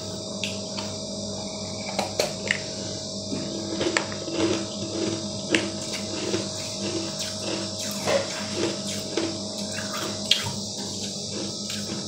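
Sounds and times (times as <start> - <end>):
steady low hum: 0.0 - 12.0
chewing crunchy ice: 3.4 - 10.2, 10.8 - 12.0.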